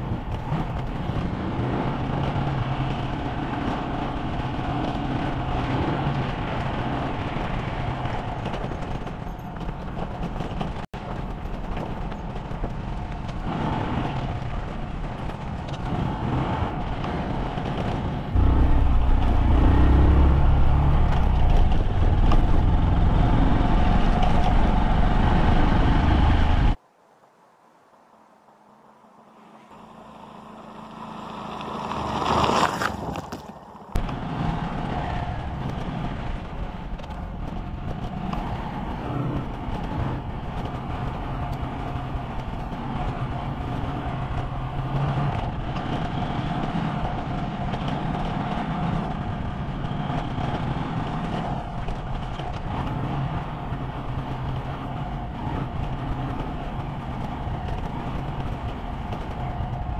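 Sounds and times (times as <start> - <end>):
road and wind noise: 0.0 - 59.9
motorcycle engine running: 13.7 - 26.8, 29.4 - 59.9
swelling sound: 18.3 - 24.9.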